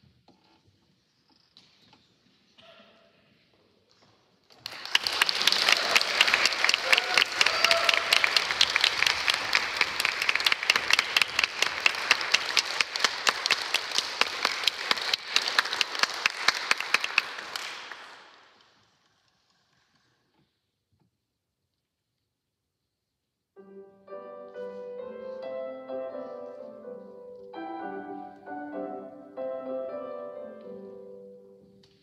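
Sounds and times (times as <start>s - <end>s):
audience applause: 4.5s - 18.8s.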